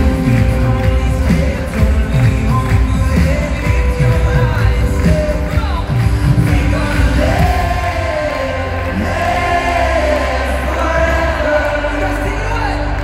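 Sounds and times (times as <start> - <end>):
distant echoing live band: 0.0 - 13.0.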